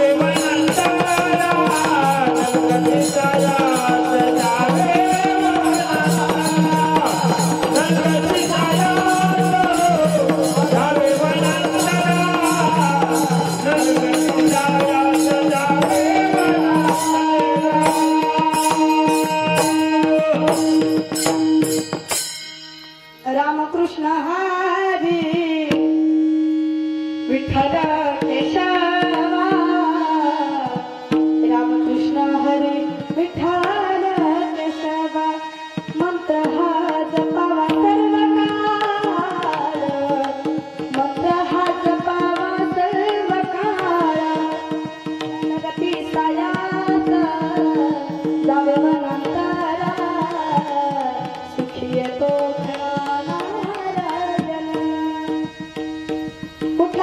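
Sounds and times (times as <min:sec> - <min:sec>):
person singing ornamented melody: 0:00.0 - 0:21.9
held steady drone note: 0:00.0 - 0:23.3
hand cymbals clashing: 0:00.2 - 0:23.3.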